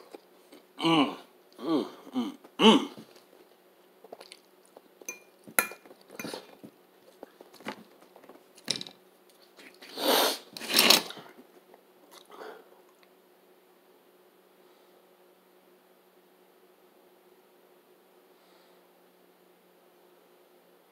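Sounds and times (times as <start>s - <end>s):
chewing and mouth sounds: 4.0s - 5.1s.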